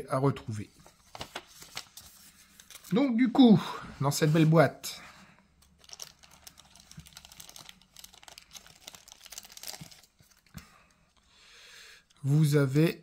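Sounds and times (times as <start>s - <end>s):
plastic packaging crinkling: 5.6s - 10.6s.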